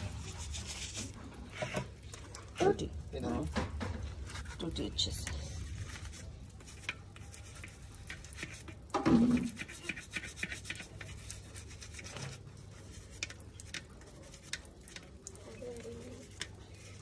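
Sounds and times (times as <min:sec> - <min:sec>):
toothbrush scrubbing plastic tap: 0:06.5 - 0:17.0.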